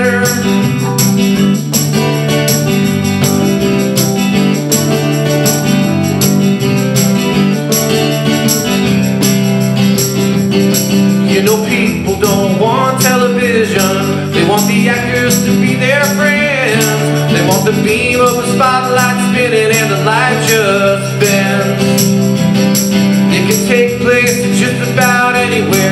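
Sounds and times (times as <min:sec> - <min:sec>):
keyboard chords: 0:00.0 - 0:25.9
strummed acoustic guitars: 0:00.0 - 0:25.9
wavering gliding lead melody: 0:00.3 - 0:11.4.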